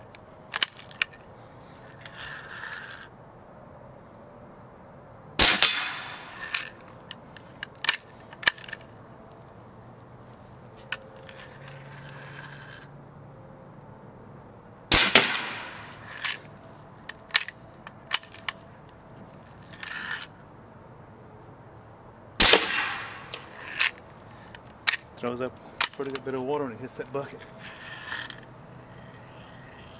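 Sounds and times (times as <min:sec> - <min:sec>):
air cannon shot cracking: 0:05.4 - 0:06.3, 0:14.9 - 0:15.9, 0:22.4 - 0:23.5.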